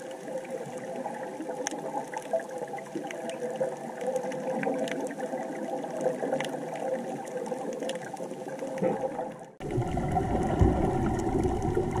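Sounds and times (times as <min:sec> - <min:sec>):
underwater breathing bubbles: 0:00.0 - 0:12.0
faint clicks: 0:01.5 - 0:05.2.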